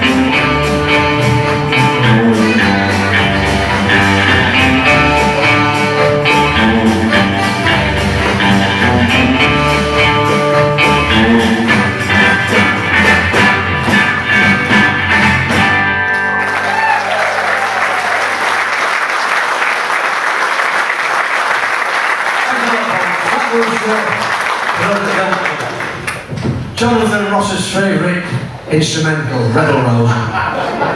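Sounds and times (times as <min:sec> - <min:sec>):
live rock and roll band: 0:00.0 - 0:18.6
audience applause: 0:16.0 - 0:26.4.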